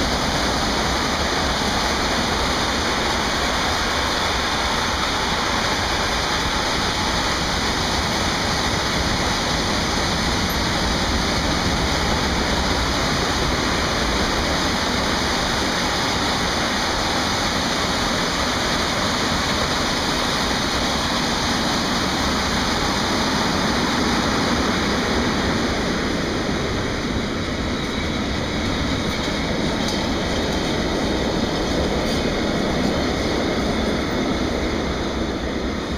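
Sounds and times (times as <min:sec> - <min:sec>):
freight train wheels rumbling: 0:00.0 - 0:35.9.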